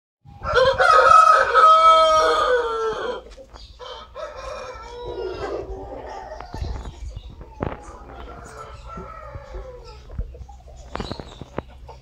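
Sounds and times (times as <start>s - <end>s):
rooster crowing: 0.4s - 3.2s, 3.8s - 6.7s, 7.9s - 10.1s.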